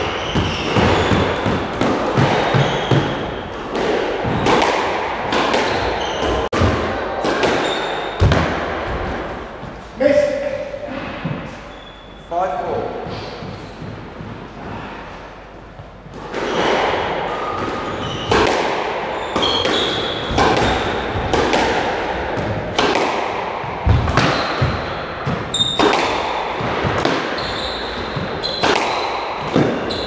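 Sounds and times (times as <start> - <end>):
shoes squeaking on wooden floor: 0.0 - 3.5, 5.7 - 6.6, 19.1 - 20.8, 27.3 - 28.7, 29.8 - 30.0
squash ball hitting rackets and walls: 0.0 - 9.7, 15.7 - 30.0.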